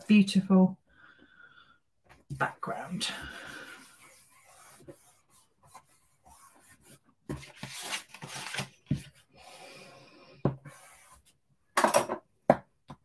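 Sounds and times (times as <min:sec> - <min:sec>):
card stock rubbing on paper: 0:02.4 - 0:09.1, 0:10.6 - 0:11.3.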